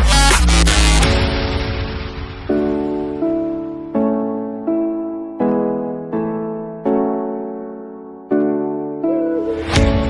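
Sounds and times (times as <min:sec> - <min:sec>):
bass line: 0:00.0 - 0:01.5.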